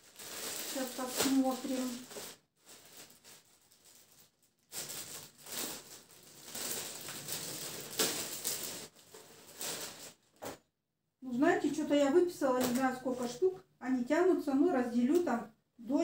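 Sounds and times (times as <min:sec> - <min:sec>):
plastic bag crinkling: 0:00.0 - 0:10.4.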